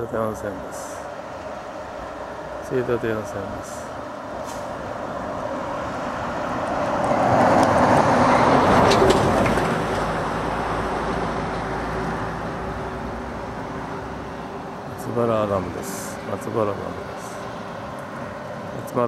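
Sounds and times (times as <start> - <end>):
small truck driving past: 4.0 - 15.0.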